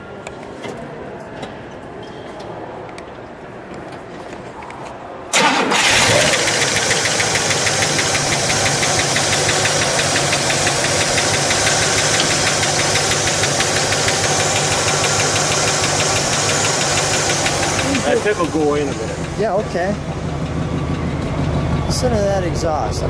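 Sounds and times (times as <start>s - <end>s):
car engine idling: 5.4s - 23.0s.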